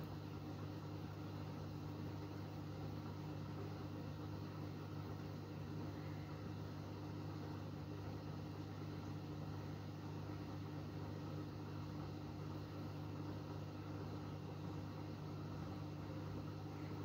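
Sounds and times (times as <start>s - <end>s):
washing machine motor hum: 0.0s - 17.0s.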